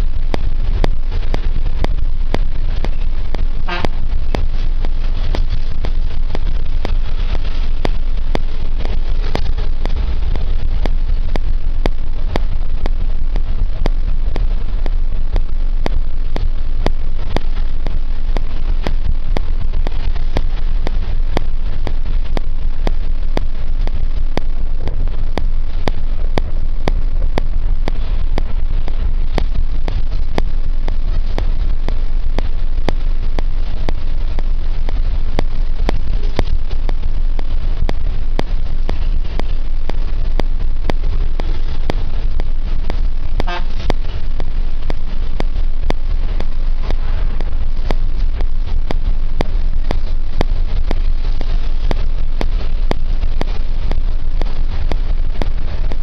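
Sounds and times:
bus engines rumbling: 0:00.0 - 0:22.9, 0:33.1 - 0:48.4.

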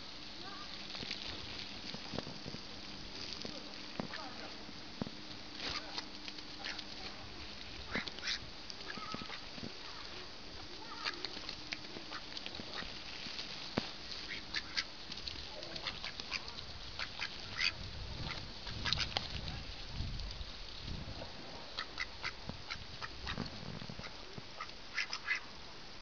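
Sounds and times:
ducks quacking: 0:06.6 - 0:06.9, 0:07.8 - 0:10.1, 0:12.0 - 0:13.1, 0:14.1 - 0:15.0, 0:15.6 - 0:19.2, 0:21.7 - 0:23.4, 0:24.0 - 0:25.6.

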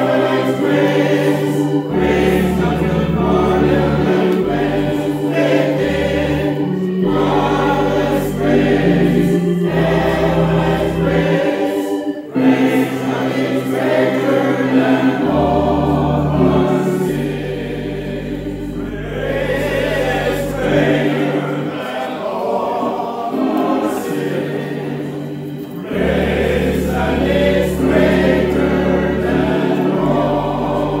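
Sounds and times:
men's choir singing a hymn: 0:00.0 - 0:31.0.

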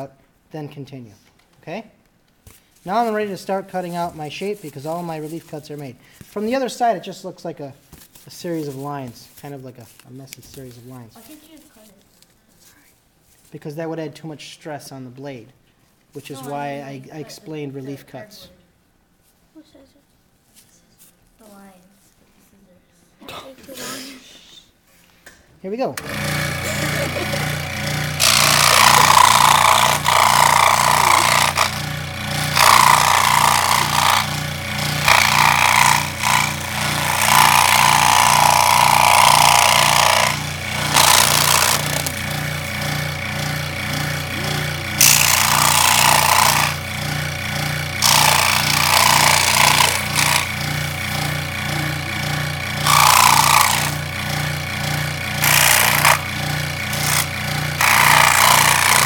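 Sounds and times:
saw blade cutting cardboard: 0:26.0 - 0:59.0
scroll saw running: 0:26.0 - 0:59.0.

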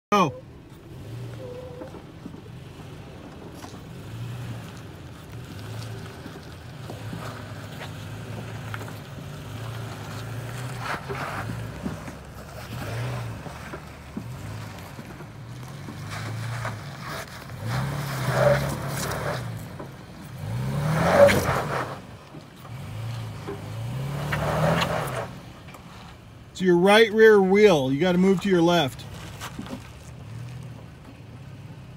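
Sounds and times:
pickup truck engine revving: 0:00.6 - 0:26.1.

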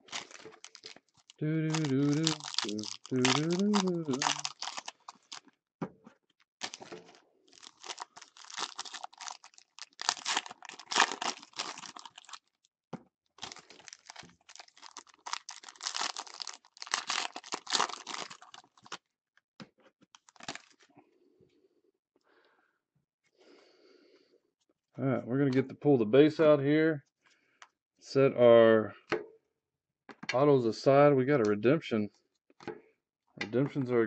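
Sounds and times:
plastic wrapping tearing and crinkling: 0:00.0 - 0:05.5, 0:06.6 - 0:12.5, 0:13.4 - 0:19.0, 0:20.2 - 0:20.8.

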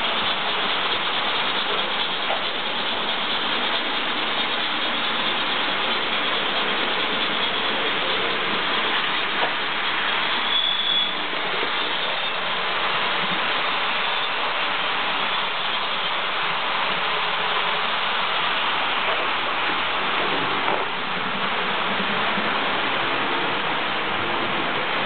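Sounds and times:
model train wheels whirring: 0:00.0 - 0:25.0.

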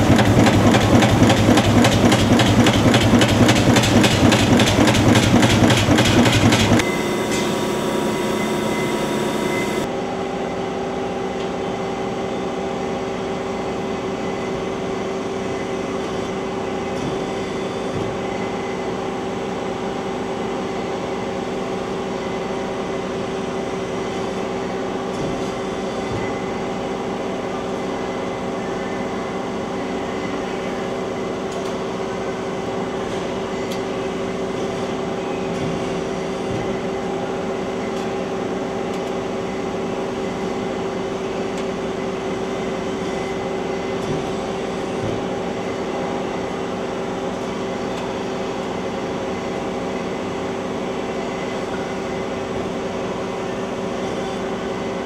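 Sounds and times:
press brake humming: 0:00.0 - 0:09.9.

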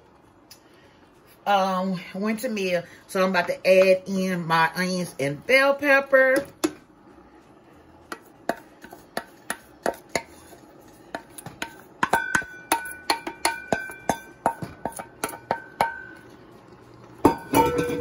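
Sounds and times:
wooden spoon knocking steel bowl: 0:11.1 - 0:16.1, 0:17.2 - 0:18.0
bowl ringing: 0:17.2 - 0:18.0.

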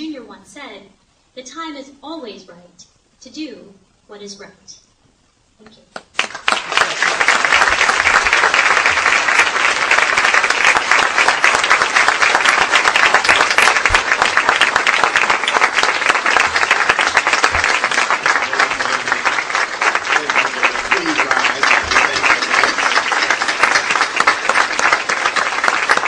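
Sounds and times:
audience applause: 0:06.1 - 0:26.0.

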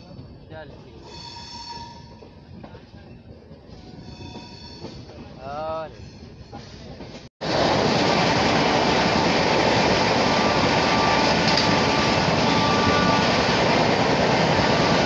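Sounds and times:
train coaches passing close: 0:00.0 - 0:15.0
rushing air: 0:07.4 - 0:15.0
wheels on rails: 0:08.1 - 0:15.0.

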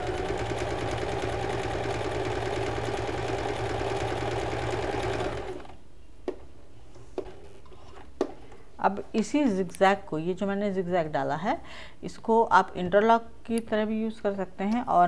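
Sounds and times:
sewing machine stitching: 0:00.0 - 0:05.8.

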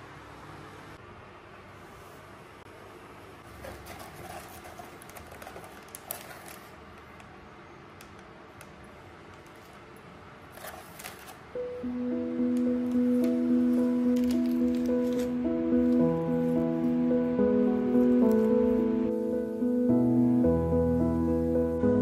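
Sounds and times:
paper sachets rustling: 0:03.6 - 0:06.9, 0:10.5 - 0:11.6, 0:12.7 - 0:16.6
soft piano music: 0:11.5 - 0:22.0.

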